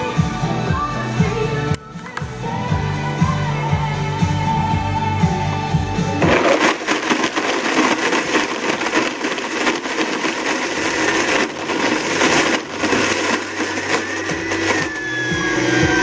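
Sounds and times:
blender running: 6.2 - 16.0.

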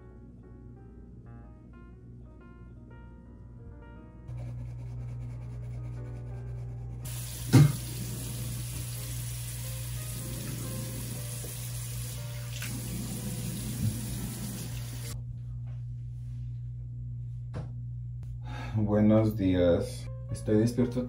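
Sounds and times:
faucet running into sink: 7.1 - 15.2.

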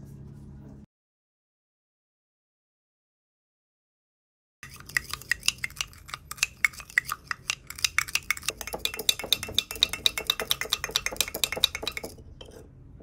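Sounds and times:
wooden spoon clicking in cup: 4.6 - 12.2.

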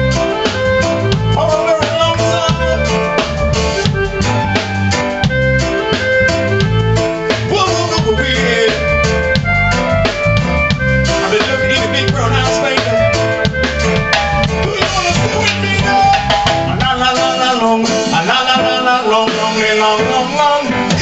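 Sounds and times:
bass guitar: 0.0 - 21.0
drum kit beat: 0.0 - 21.0
keyboard: 0.0 - 21.0
man singing: 1.2 - 3.4, 7.3 - 9.4, 11.1 - 13.5, 14.4 - 21.0.

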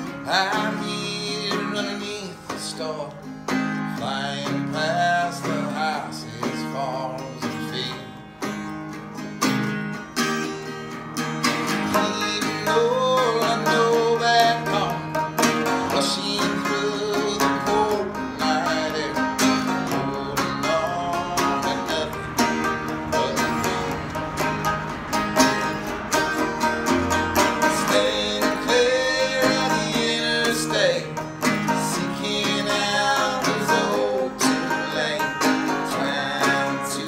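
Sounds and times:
acoustic guitar: 0.0 - 37.0
banjo: 0.0 - 37.0.

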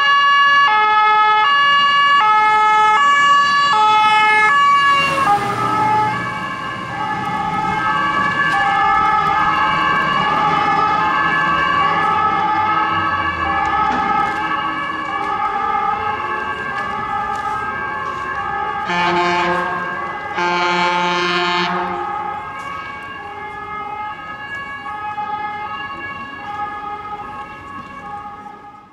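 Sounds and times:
fire truck two-tone siren: 0.0 - 28.9
loud horn blasts: 18.7 - 22.4.

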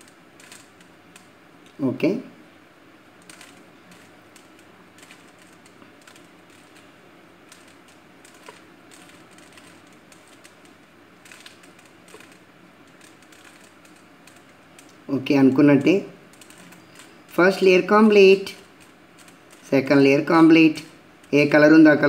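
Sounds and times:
puzzle cube clicking: 0.0 - 1.8, 3.2 - 15.1, 15.8 - 17.6, 18.4 - 19.8.

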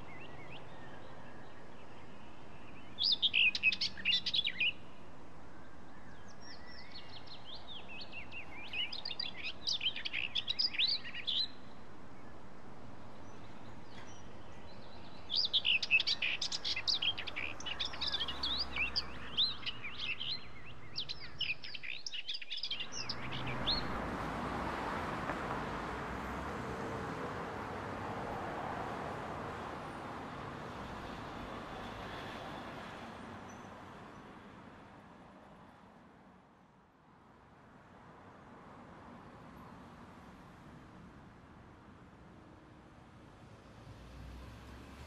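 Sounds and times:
birds chirping: 0.0 - 4.8, 5.7 - 12.4, 13.1 - 26.3.

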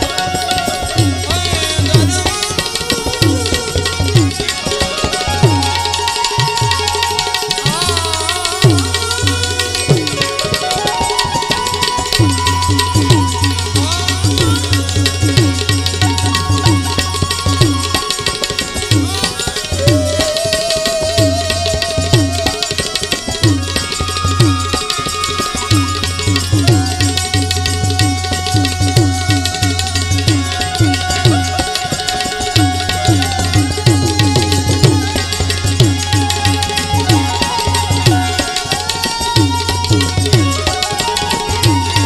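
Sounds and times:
harmonium melody: 0.0 - 42.0
tabla playing: 0.0 - 42.0.

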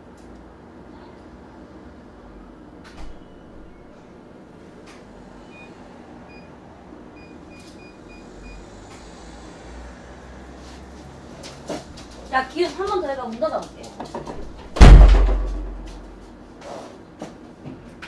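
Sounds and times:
sharp knock: 14.8 - 15.9.

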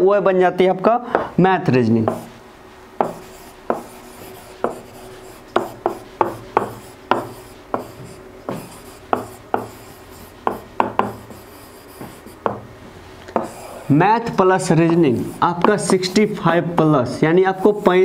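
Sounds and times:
pen tapping on whiteboard: 3.0 - 4.0, 4.6 - 4.9, 5.5 - 12.6, 13.3 - 13.6
pen scratching: 3.0 - 12.6, 13.4 - 13.9.

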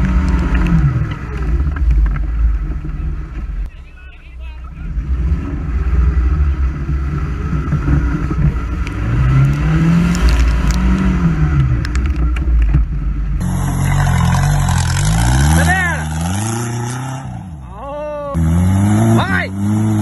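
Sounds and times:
buggy engine revving: 0.0 - 20.0
buggy engine under load: 0.0 - 20.0
grass ticking against frame: 8.5 - 13.0.

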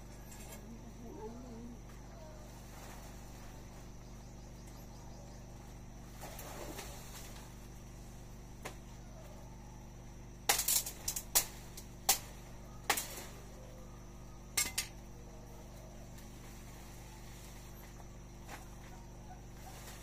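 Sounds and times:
blade hacking at tree branches: 10.4 - 13.4.

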